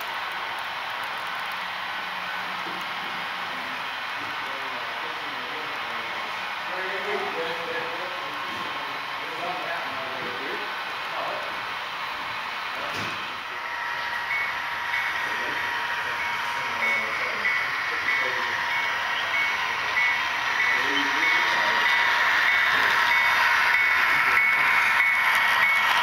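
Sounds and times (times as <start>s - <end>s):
model train running: 0.0s - 26.0s.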